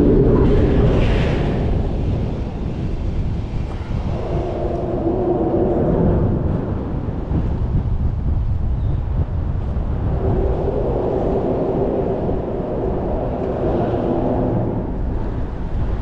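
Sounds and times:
rumble of passing cars: 0:00.0 - 0:16.0
wind buffeting microphone: 0:00.0 - 0:16.0.

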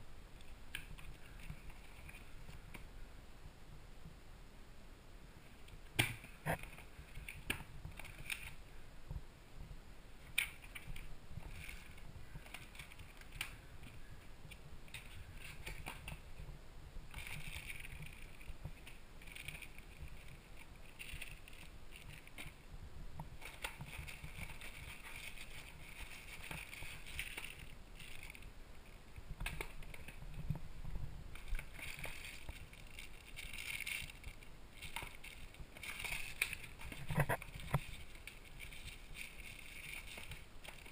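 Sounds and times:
small clicks and knocks: 0:05.6 - 0:08.6, 0:10.2 - 0:16.5, 0:17.1 - 0:28.5, 0:29.1 - 0:40.9
plastic bags and paper crinkling: 0:17.1 - 0:22.6, 0:23.2 - 0:28.5, 0:29.2 - 0:40.9.

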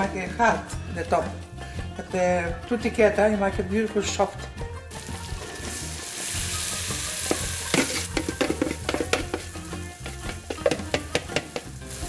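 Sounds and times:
butter and flour sizzling: 0:04.9 - 0:12.0
spoon knocking against pot: 0:07.3 - 0:11.8.

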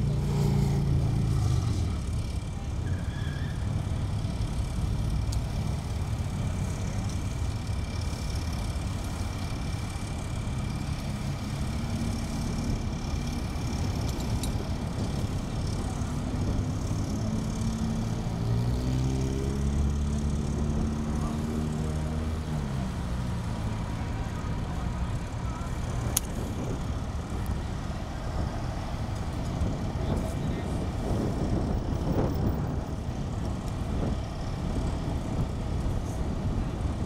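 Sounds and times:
engine speeding up and passing: 0:00.0 - 0:02.4, 0:10.7 - 0:24.6
road traffic: 0:00.0 - 0:37.0
vehicle engines idling: 0:00.0 - 0:37.0.

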